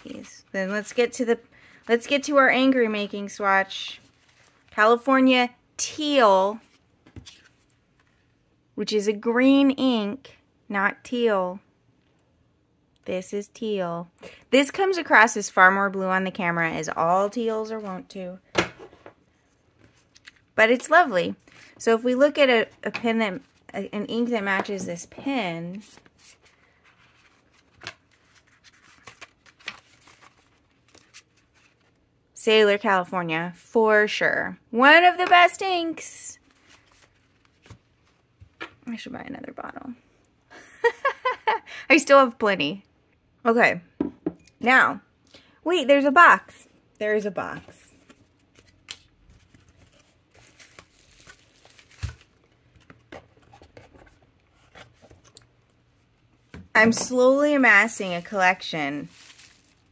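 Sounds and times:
cards rustling: 25.8s - 32.0s, 36.5s - 38.2s, 47.7s - 55.4s, 57.8s - 59.9s
plastic packaging crinkling: 48.1s - 52.8s, 58.1s - 59.9s.

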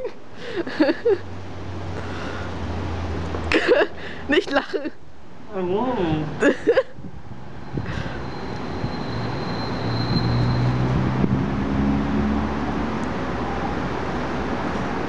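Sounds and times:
steady outdoor rumble: 0.0s - 15.0s
motor vehicle passing: 7.2s - 15.0s.

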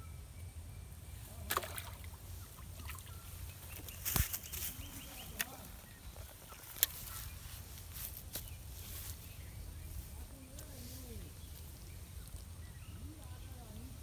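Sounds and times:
fish splashing: 1.4s - 3.1s
fish flopping on grass: 3.8s - 7.2s.

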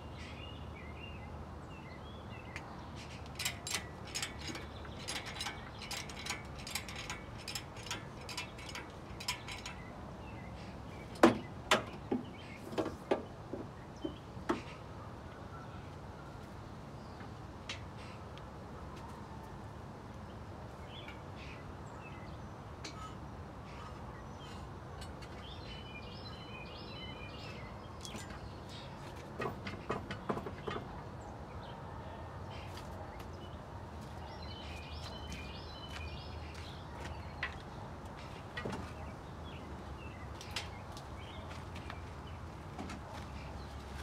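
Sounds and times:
birds singing: 0.0s - 19.2s, 20.1s - 44.0s
low background noise: 0.0s - 44.0s
hand tools clinking on metal: 3.0s - 10.3s.

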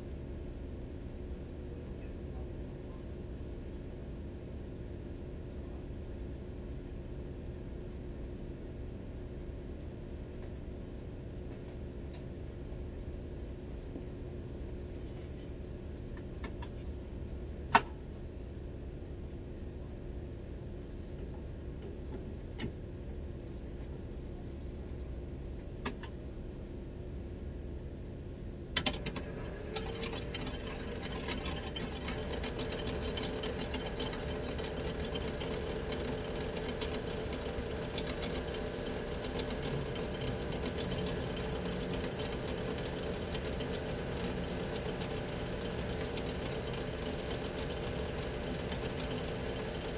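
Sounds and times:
lathe chuck spinning: 28.8s - 49.9s
sharp clicks: 28.8s - 49.9s
low hum: 28.9s - 49.9s.

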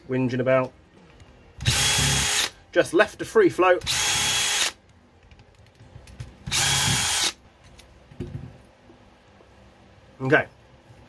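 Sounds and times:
drill driving out screws: 1.6s - 2.5s, 3.9s - 4.8s, 6.5s - 7.4s.

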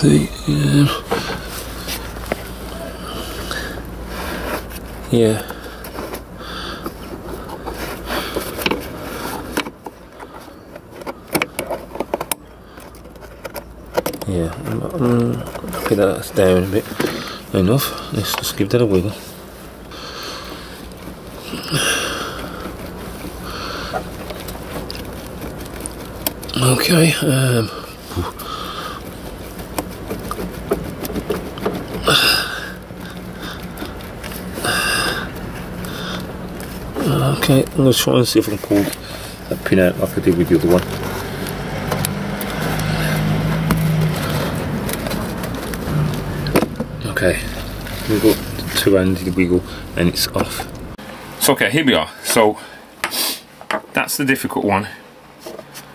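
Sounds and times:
rubber hoses rustling and scraping: 0.0s - 55.9s
plastic parts clicking and knocking: 7.6s - 16.0s.

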